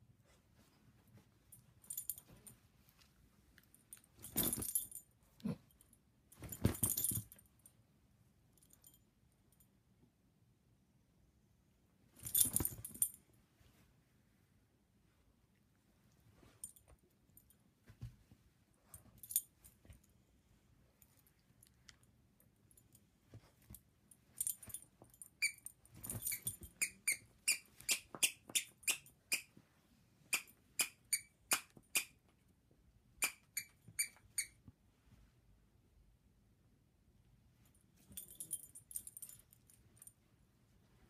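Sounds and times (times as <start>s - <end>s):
dog toy squeaking: 26.3s - 29.5s.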